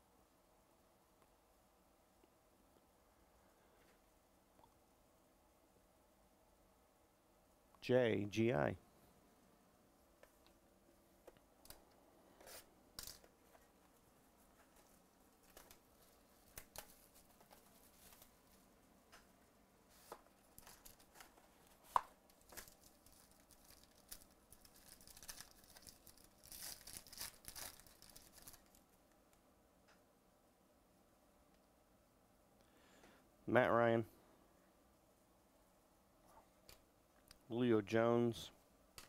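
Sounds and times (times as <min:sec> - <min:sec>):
wrapper crinkling and tearing: 0:22.3 - 0:28.8.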